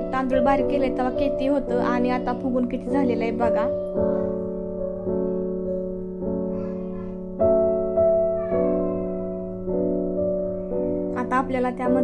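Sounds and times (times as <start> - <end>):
slow keyboard chords: 0.0 - 12.0.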